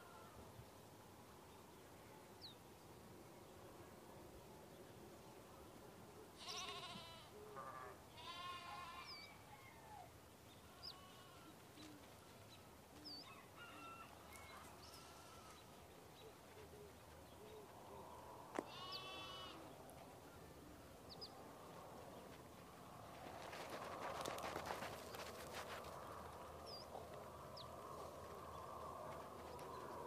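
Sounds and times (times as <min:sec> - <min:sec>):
sheep bleating: 0:06.4 - 0:09.3, 0:10.7 - 0:11.6, 0:14.8 - 0:15.6, 0:18.6 - 0:19.7.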